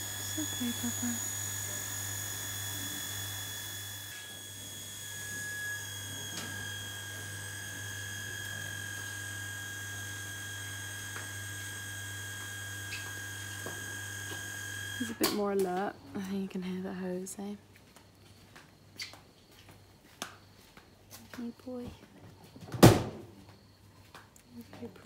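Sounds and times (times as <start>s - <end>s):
high-pitched whine: 0.0s - 13.7s
low electrical hum: 0.0s - 25.0s.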